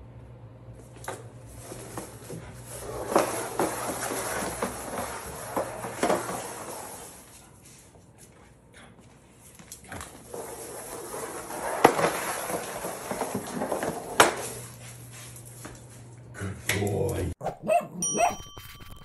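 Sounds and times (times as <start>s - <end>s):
plastic crate scraping on tile: 1.1s - 7.5s, 10.0s - 15.1s.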